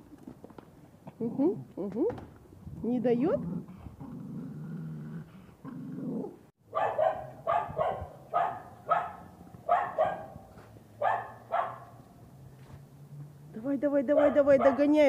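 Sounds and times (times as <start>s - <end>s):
dog growling: 3.3s - 6.5s
dog barking sharply: 6.7s - 12.0s.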